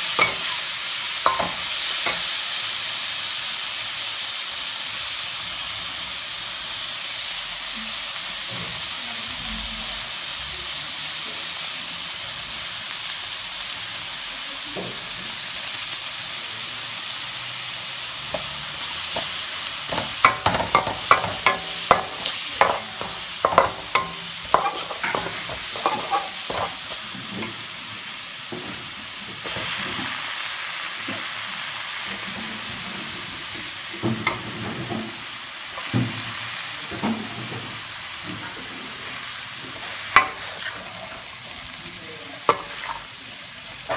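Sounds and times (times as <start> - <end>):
food sizzling in a wok: 0.0 - 43.9
spatula scraping and knocking pan: 1.2 - 2.3, 18.3 - 27.6, 39.8 - 41.2, 42.5 - 43.1.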